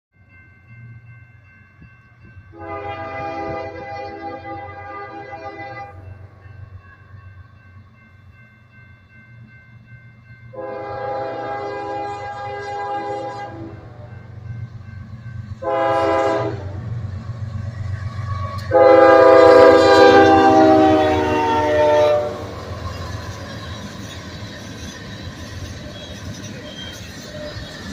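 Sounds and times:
locomotive air horn blasts: 2.6 - 6.1, 10.5 - 14.0, 15.6 - 17.0, 18.3 - 22.6.

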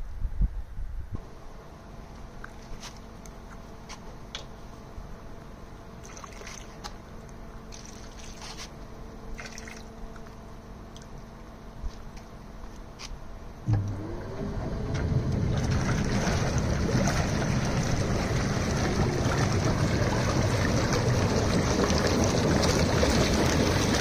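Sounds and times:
machine hum: 1.2 - 24.0
liquid trickling into water: 6.0 - 11.3, 14.8 - 24.0.

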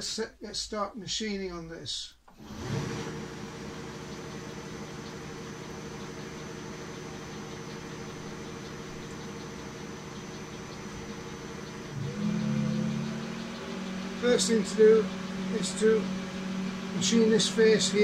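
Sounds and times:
lathe motor and gear hum: 2.4 - 18.0
low drone: 7.2 - 18.0.

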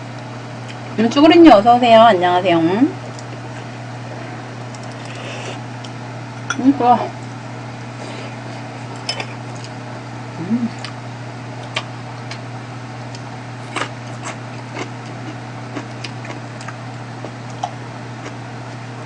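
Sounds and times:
electric fan humming: 0.0 - 19.0
chewing: 4.7 - 6.0, 11.6 - 12.5, 13.1 - 18.8
person murmuring: 10.4 - 10.8.

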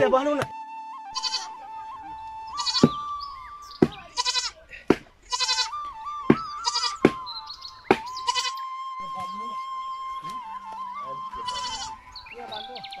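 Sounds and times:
young goat bleating: 1.2 - 1.6, 2.6 - 3.0, 4.1 - 4.6, 5.2 - 5.7, 6.6 - 7.0, 8.2 - 8.6, 11.4 - 12.0.

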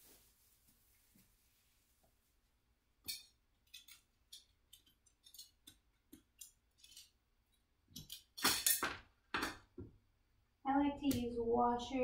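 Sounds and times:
metal washers clinking: 3.0 - 7.2, 7.9 - 9.6.

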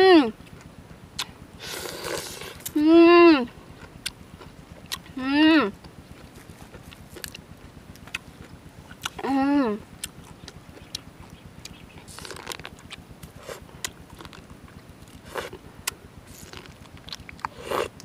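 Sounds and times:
chewing: 5.8 - 9.3, 10.0 - 18.0
small mouth clicks: 10.0 - 14.4
wet mouth sounds: 11.6 - 14.4.

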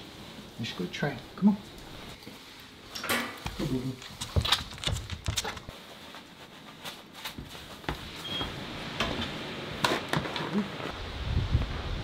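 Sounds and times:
footsteps and knocks: 3.1 - 10.4
wind rushing: 11.0 - 12.0.

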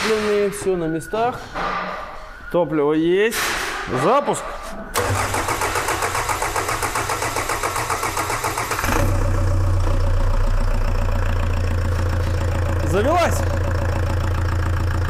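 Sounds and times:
diesel engine cranking: 4.9 - 15.0
diesel engine idling: 4.9 - 15.0
engine valve ticking: 5.0 - 9.1.

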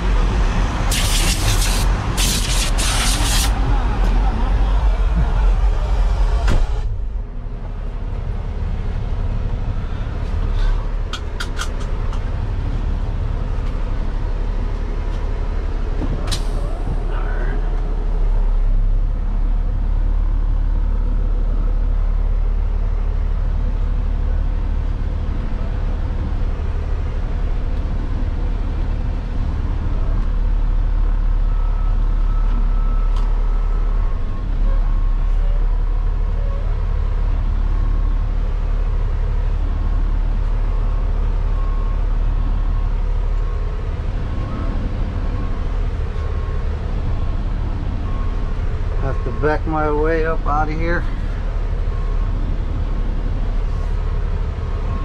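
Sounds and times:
truck diesel engine running: 0.0 - 55.0.

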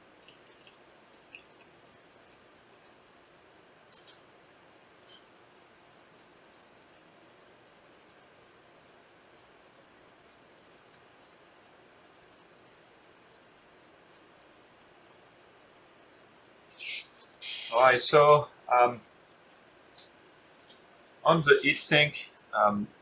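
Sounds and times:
scratchy rubbing strokes: 0.4 - 2.9, 5.0 - 11.0, 12.4 - 22.2.

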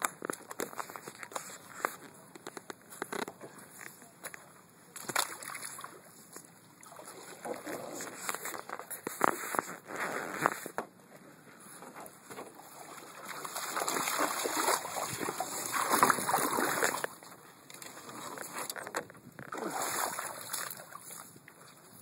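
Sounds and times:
water splashing in shallows: 5.1 - 6.1, 6.8 - 8.5, 12.6 - 18.8, 19.5 - 21.8.

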